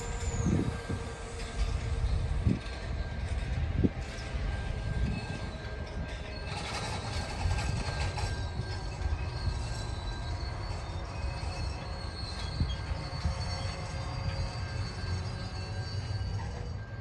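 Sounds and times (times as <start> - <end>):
high wheel squeal: 0.0 - 17.0
train wheels rumbling on rail: 0.0 - 17.0.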